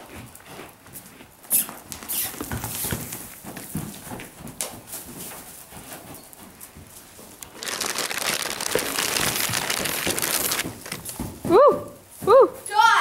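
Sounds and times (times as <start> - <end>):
muffled hoofbeats on dirt: 0.0 - 7.8, 9.0 - 12.6
loud rustling hiss: 7.5 - 11.0.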